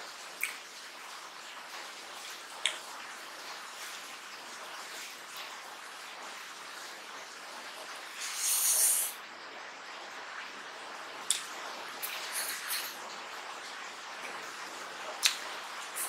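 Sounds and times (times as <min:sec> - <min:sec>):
steady hiss: 0:00.0 - 0:16.0
hissing rustle: 0:08.2 - 0:09.2.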